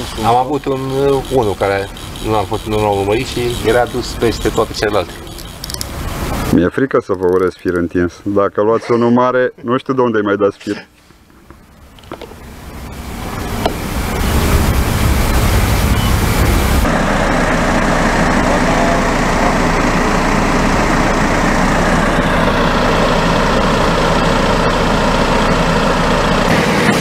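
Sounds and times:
engine running steadily: 0.0s - 6.6s, 11.2s - 27.0s.

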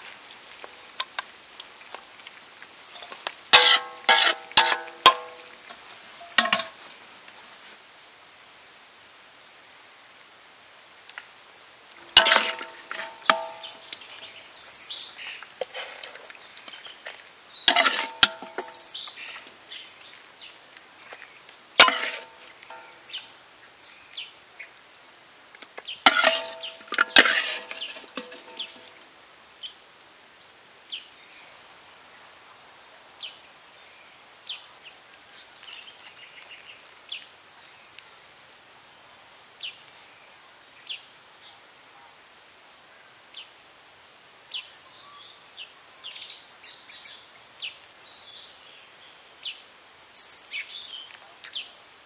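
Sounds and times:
sharp knocks and crackles: 12.2s - 14.4s.

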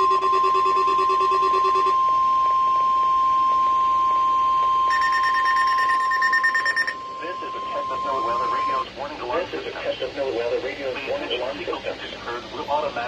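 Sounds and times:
loud steady high alert tone: 0.0s - 8.9s
pulsing lower beep: 0.0s - 8.9s
rapid pulsing higher beep: 0.0s - 8.9s.

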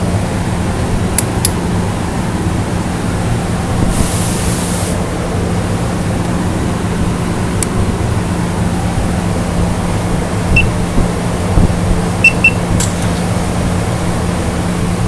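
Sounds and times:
click: 1.2s - 1.6s
sharp high hiss: 3.8s - 5.0s.

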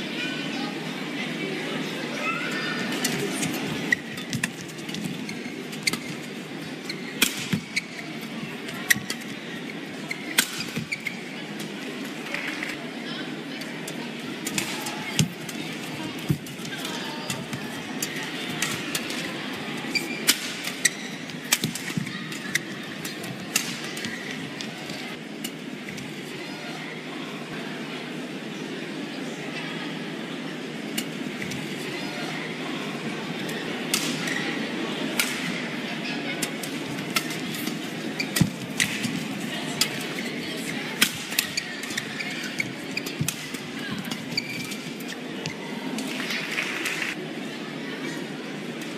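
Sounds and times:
indoor arena hum: 0.0s - 48.9s
shoes squeaking on court floor: 2.8s - 11.4s, 19.8s - 25.1s, 37.2s - 39.4s, 40.0s - 45.7s.

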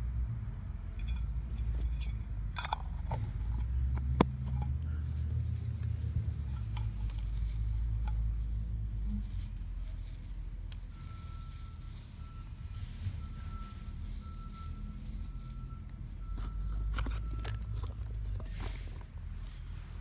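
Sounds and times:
steady low rumble: 0.0s - 20.0s
rustling of tinder bundle: 4.4s - 20.0s.

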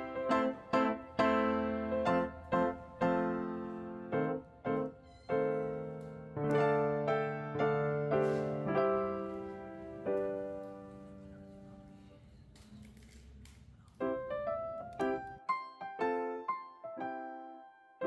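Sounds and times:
piano notes and chords: 0.0s - 12.2s, 13.9s - 18.0s.

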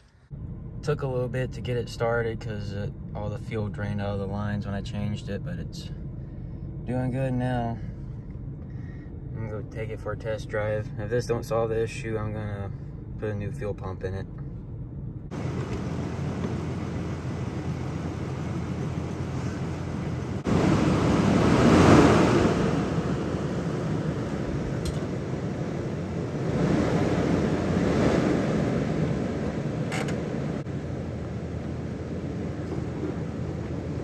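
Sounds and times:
wind on microphone: 20.4s - 30.7s.

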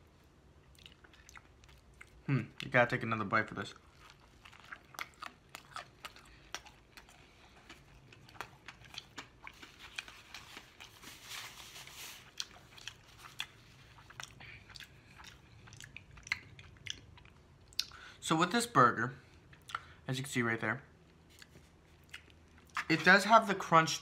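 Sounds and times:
crunchy chewing: 3.7s - 18.0s.

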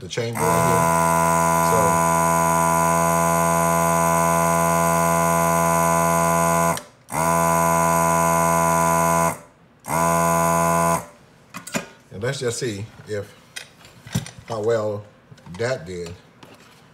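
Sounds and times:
desoldering gun vacuum pump running: 0.4s - 11.1s.

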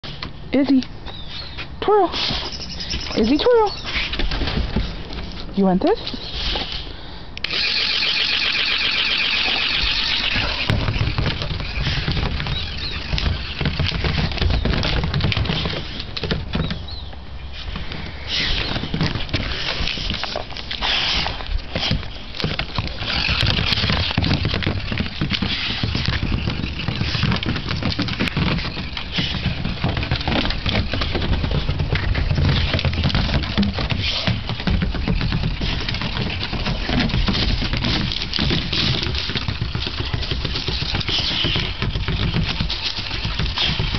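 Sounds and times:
toy motor buzzing: 7.5s - 10.6s
plastic ball rattling on wood: 8.2s - 16.8s, 21.9s - 43.9s.

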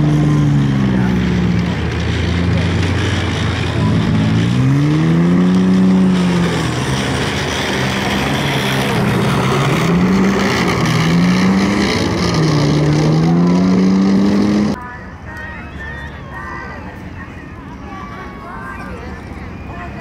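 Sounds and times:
armoured vehicle engine revving: 0.0s - 14.8s.

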